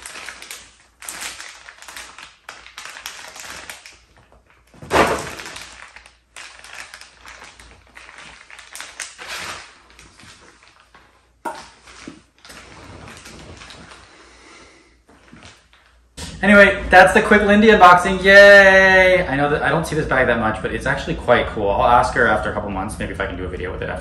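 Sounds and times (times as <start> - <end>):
plastic wrapping crinkling: 0.0 - 14.4, 15.0 - 16.6
cloth bag rustling: 4.6 - 14.2.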